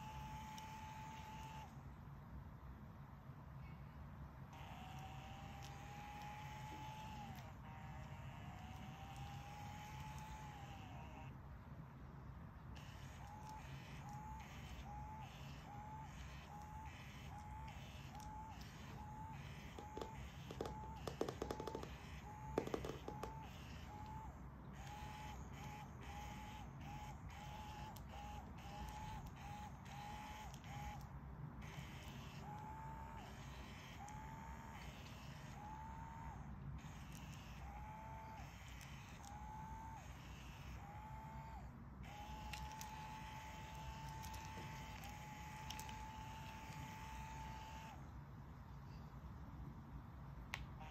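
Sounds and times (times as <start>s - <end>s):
small electric motor whining: 0.0s - 1.8s, 4.5s - 11.4s, 12.7s - 48.1s
sharp clicks and knocks: 19.8s - 23.5s
faint clicks: 42.1s - 47.0s.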